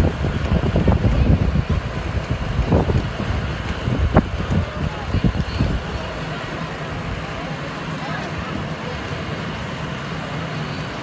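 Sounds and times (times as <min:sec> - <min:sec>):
wind buffeting microphone: 0:00.0 - 0:07.4
faint voices: 0:00.0 - 0:11.0.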